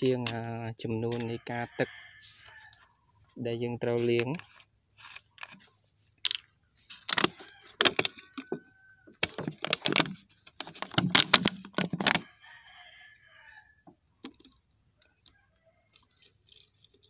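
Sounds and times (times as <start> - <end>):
plastic bottles crackling: 9.2 - 12.2
liquid trickling into bottle: 15.8 - 17.0.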